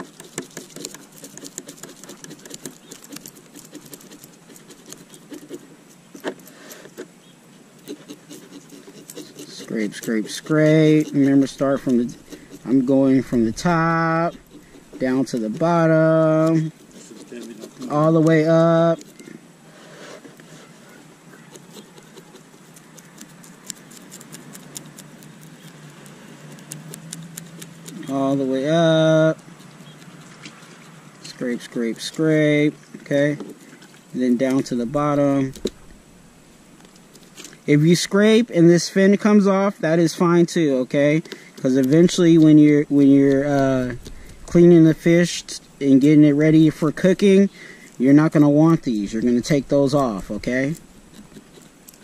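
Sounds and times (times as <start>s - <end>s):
knife scraping fish scales: 0.0s - 7.1s, 7.8s - 32.4s, 41.2s - 52.0s.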